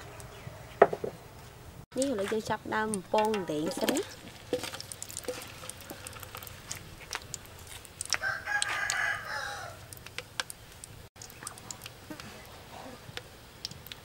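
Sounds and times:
food sizzling in hot oil: 0:02.0 - 0:14.0
rooster crowing: 0:08.1 - 0:09.9.

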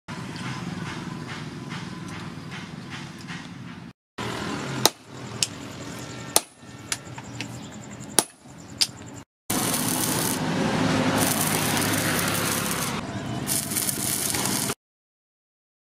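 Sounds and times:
hammer striking chisel on anvil: 0:04.8 - 0:05.6, 0:06.3 - 0:07.5, 0:08.2 - 0:09.0
arc welding crackling hiss: 0:09.5 - 0:10.4, 0:11.1 - 0:14.8.

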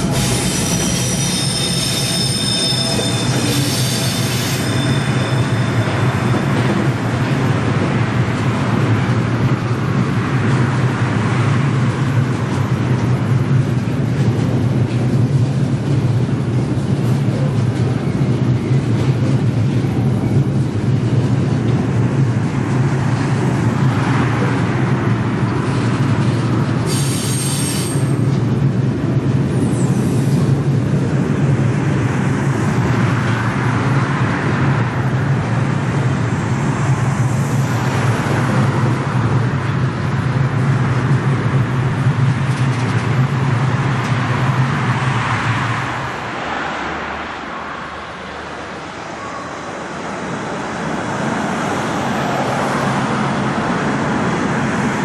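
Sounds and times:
high wheel squeal: 0:00.0 - 0:06.8, 0:26.9 - 0:28.2
train wheels rumbling on rails: 0:00.0 - 0:55.0.

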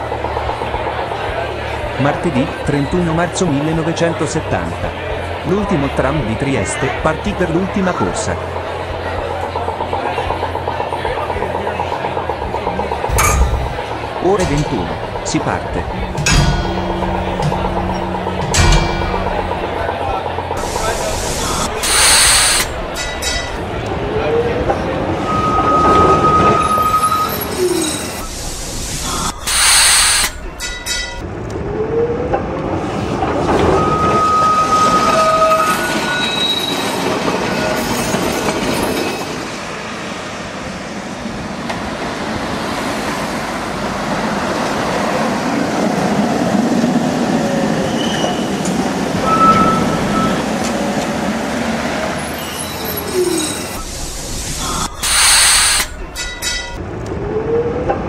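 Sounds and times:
tram running on rails: 0:00.0 - 0:58.0
steel wheels squealing: 0:08.0 - 0:31.2, 0:33.4 - 0:39.4, 0:47.7 - 0:51.0, 0:52.0 - 0:56.8.

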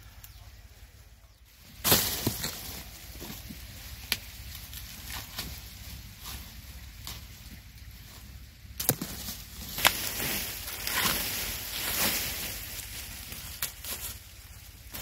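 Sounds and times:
corn husks rustling and tearing: 0:01.5 - 0:15.0
sharp snaps of corn: 0:04.1 - 0:04.3.

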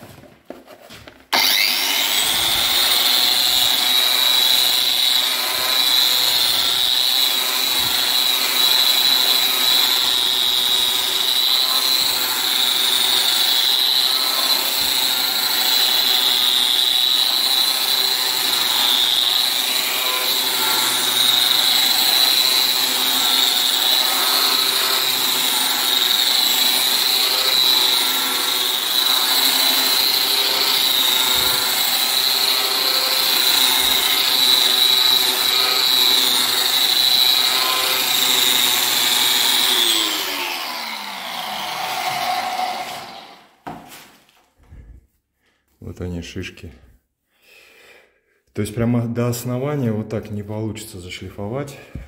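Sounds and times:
electric sander whining: 0:01.3 - 0:43.5
sanding glue off concrete wall: 0:01.6 - 0:40.3.

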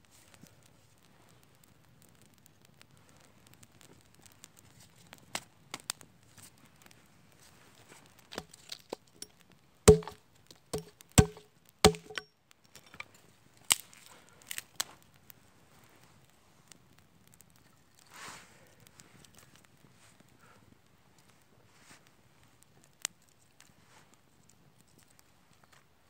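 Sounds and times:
axe chopping wood: 0:09.9 - 0:10.2, 0:10.8 - 0:12.2.

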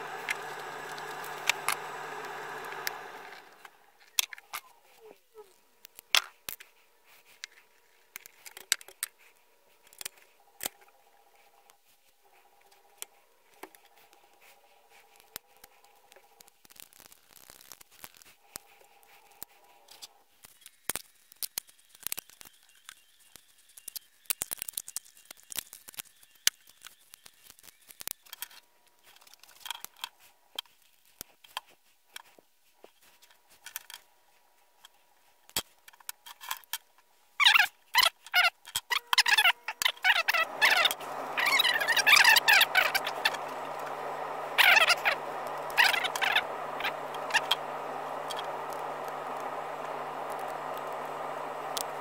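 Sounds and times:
faint steady hum: 0:00.0 - 0:20.7, 0:38.7 - 0:52.0.

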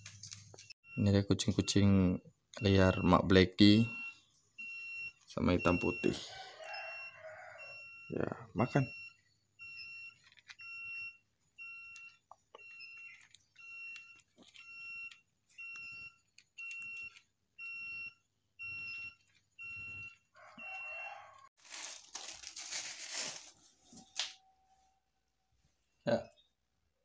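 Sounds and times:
electronic alarm beeping: 0:00.8 - 0:21.4.

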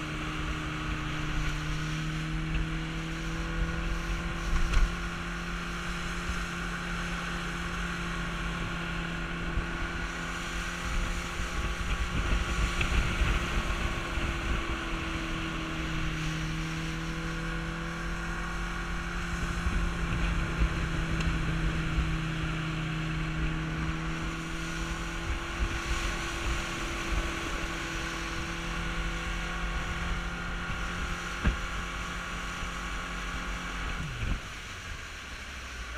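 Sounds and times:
motorboat engine humming: 0:00.0 - 0:35.9
wind buffeting microphone: 0:08.0 - 0:32.8.

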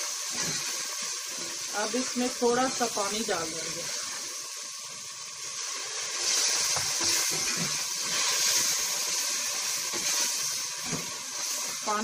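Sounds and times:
water sizzling in hot oil: 0:00.0 - 0:12.0.

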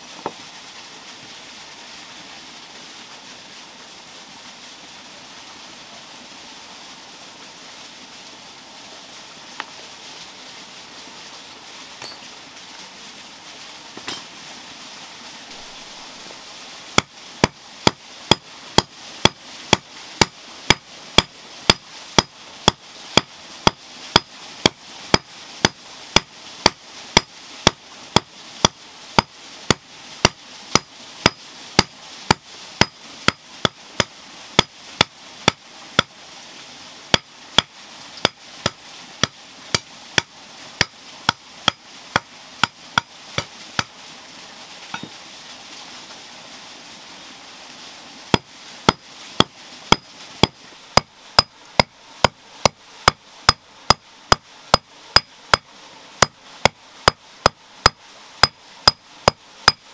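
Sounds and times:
hammer striking iron: 0:12.0 - 0:12.2.

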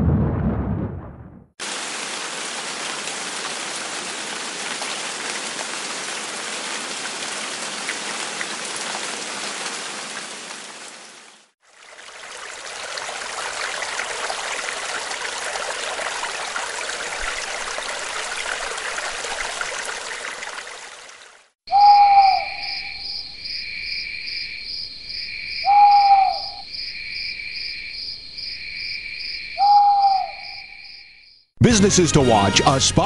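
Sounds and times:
rain hissing: 0:01.6 - 0:21.6.

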